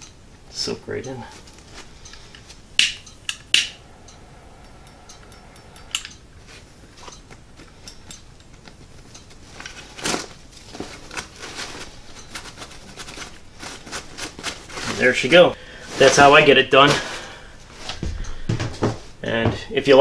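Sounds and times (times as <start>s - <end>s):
backpack fabric rustling: 9.6s - 18.0s.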